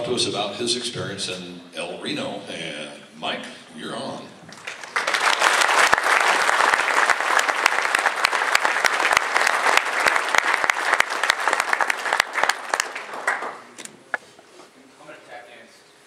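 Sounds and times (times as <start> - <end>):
audience applauding: 4.5 - 13.8.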